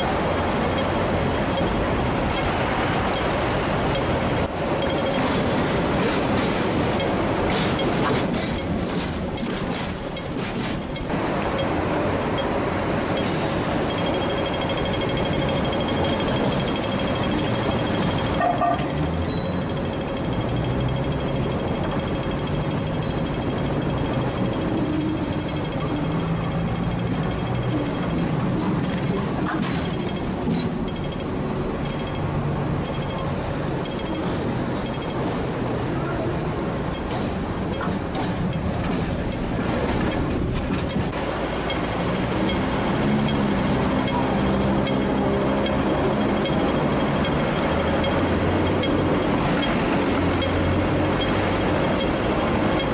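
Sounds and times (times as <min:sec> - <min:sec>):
trams and cars on road: 0:00.0 - 0:52.9
fast mechanical ticking: 0:13.2 - 0:35.2, 0:36.8 - 0:52.9.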